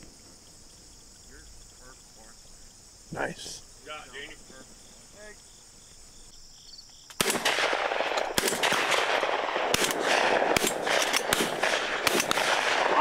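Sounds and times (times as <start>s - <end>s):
faint crickets: 0.0s - 13.0s
shotgun shots: 7.2s - 13.0s.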